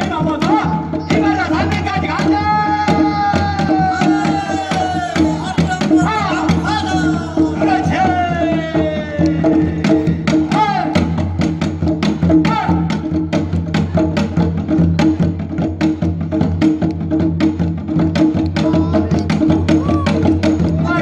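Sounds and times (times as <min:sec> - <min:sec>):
drums beating: 0:00.0 - 0:21.0
person singing: 0:00.4 - 0:11.0.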